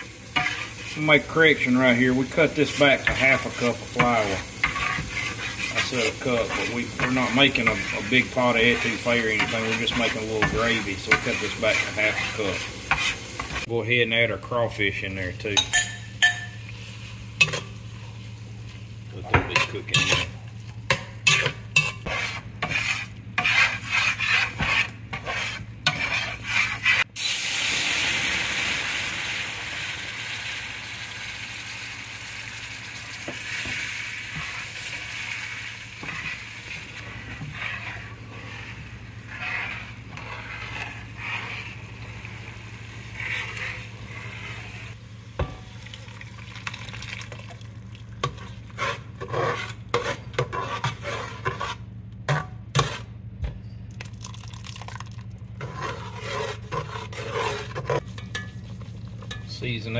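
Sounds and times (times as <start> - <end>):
metal spoon stirring in pot: 0.0 - 13.7, 15.4 - 17.8, 19.2 - 27.1, 33.5 - 46.0, 47.2 - 53.1, 54.6 - 59.8
spatula scraping skillet: 0.0 - 13.8, 14.8 - 27.1, 33.1 - 45.6, 48.2 - 53.2, 55.6 - 59.9
roux sizzling in skillet: 0.0 - 13.9, 14.8 - 53.0, 55.6 - 59.9.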